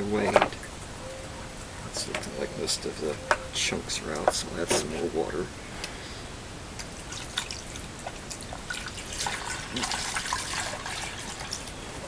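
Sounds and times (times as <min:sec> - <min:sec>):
water dripping and trickling: 0:06.7 - 0:12.0.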